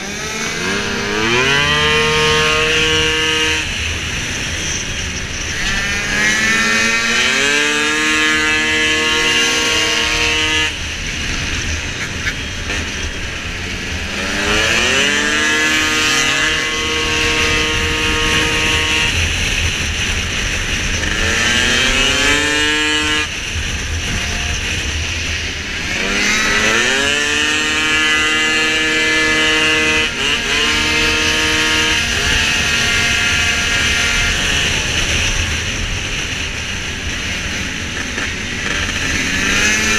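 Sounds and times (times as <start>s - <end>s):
scooter engine revving: 0.0s - 39.9s.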